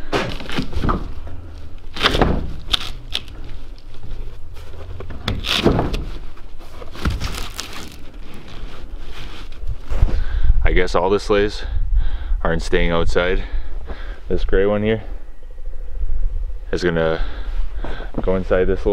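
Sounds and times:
low rumble: 0.7s - 18.9s.

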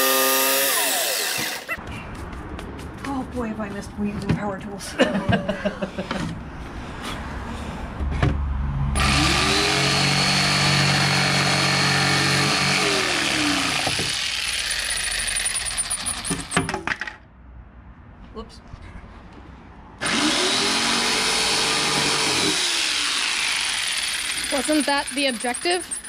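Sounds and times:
jigsaw cutting plywood: 0.0s - 1.7s, 9.0s - 16.5s, 20.0s - 26.0s.

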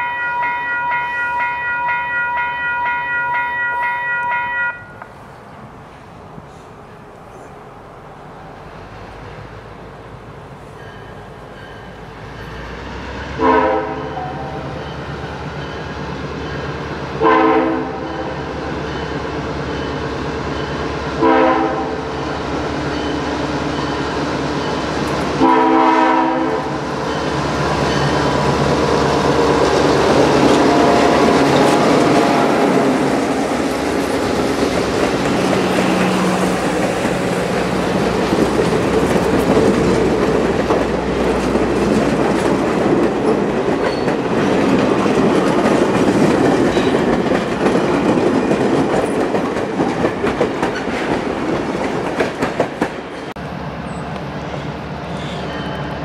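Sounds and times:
locomotive air horn blast: 13.3s - 14.8s, 17.2s - 18.3s, 21.2s - 22.1s, 25.4s - 26.8s
train wheels clicking over rail joints: 22.4s - 25.5s, 26.7s - 53.4s
locomotive engine rumble: 22.4s - 56.0s.

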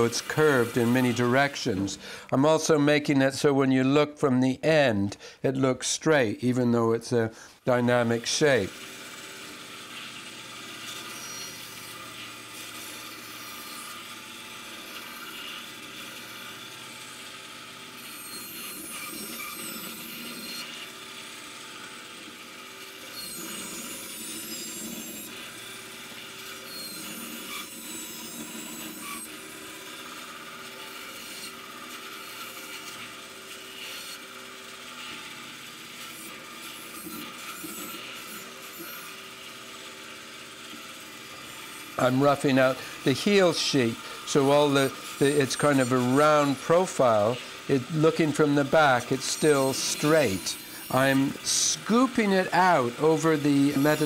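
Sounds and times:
bandsaw cutting wood: 0.0s - 2.3s, 7.4s - 54.0s
high wavering blade whine: 11.0s - 12.1s, 18.0s - 20.9s, 23.1s - 25.8s, 26.6s - 29.5s, 41.1s - 54.0s.

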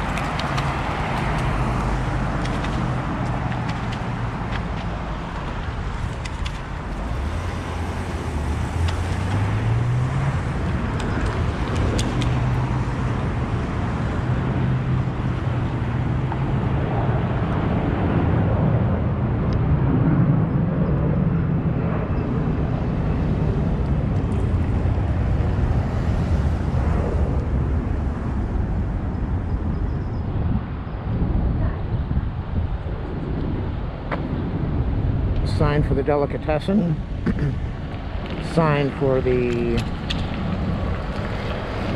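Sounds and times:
vehicle accelerating: 0.0s - 16.8s
vehicle engines passing: 0.0s - 41.9s.

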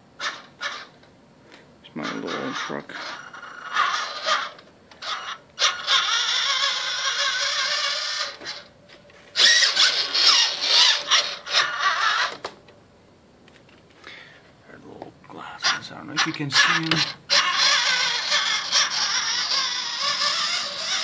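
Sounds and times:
toy truck motor whining: 2.0s - 8.7s, 9.3s - 12.5s, 16.2s - 21.0s.

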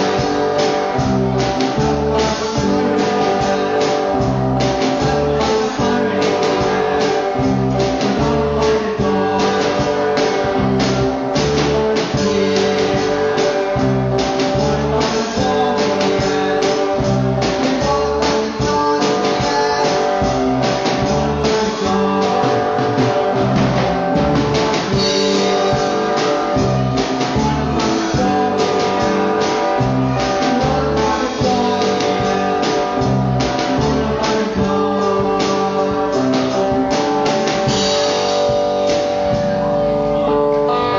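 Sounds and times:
rock band playing live: 0.0s - 40.9s.

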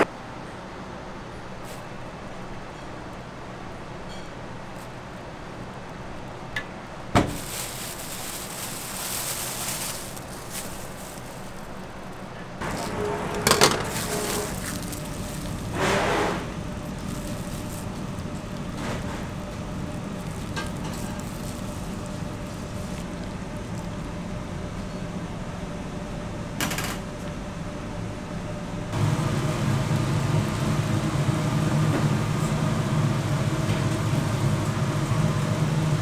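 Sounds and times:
kitchen hum: 6.6s - 36.0s
plastic bag rustling: 7.2s - 24.0s
short scrape: 12.6s - 14.9s, 15.7s - 16.6s
utensils clattering: 12.6s - 19.3s, 20.2s - 22.9s.

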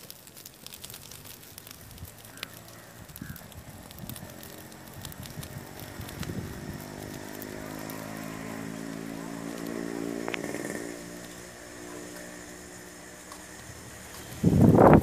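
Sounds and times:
fire of dry leaves crackling: 0.0s - 15.0s
small engine running: 3.6s - 15.0s.

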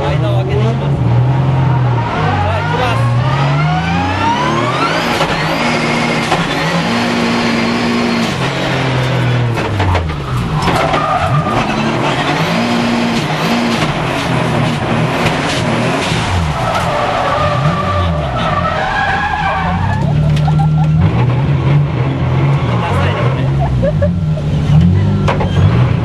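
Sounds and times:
car engine revving: 0.0s - 26.0s
tyres squealing: 10.1s - 13.8s, 16.4s - 21.3s.

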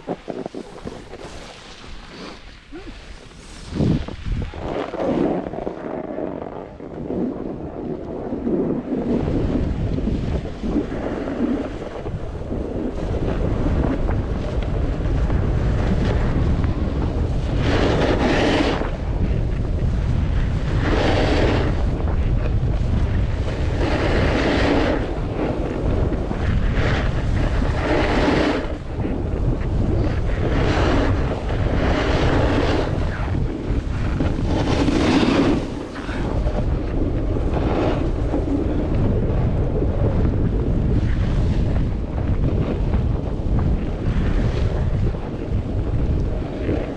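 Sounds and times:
skis swishing through snow: 0.0s - 6.4s, 8.4s - 38.9s
wind buffeting microphone: 0.0s - 46.9s.

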